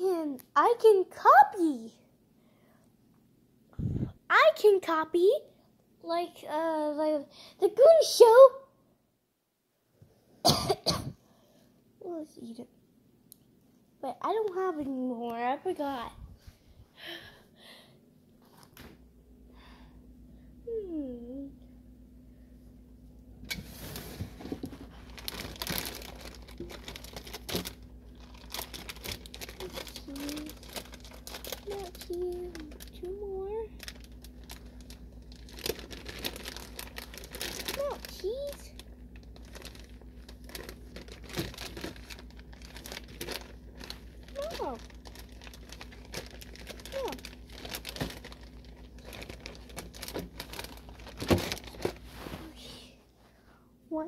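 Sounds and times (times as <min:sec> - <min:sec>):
steady low hum: 0:01.9 - 0:04.3, 0:08.8 - 0:54.0
plastic packaging crinkling: 0:23.6 - 0:52.2.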